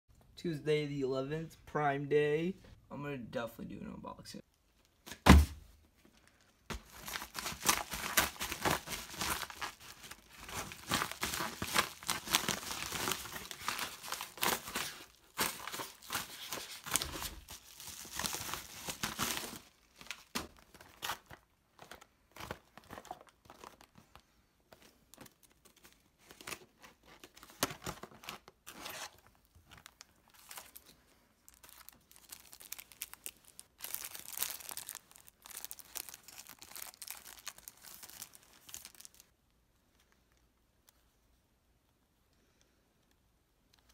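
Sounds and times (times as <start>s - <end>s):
packaging crinkling and tearing: 6.7s - 24.3s, 25.1s - 39.3s.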